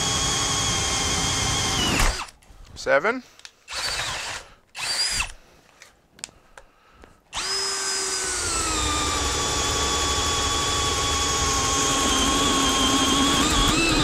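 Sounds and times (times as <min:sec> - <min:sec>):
cordless drill boring wood: 0:00.0 - 0:02.3, 0:03.7 - 0:05.4, 0:07.3 - 0:14.0.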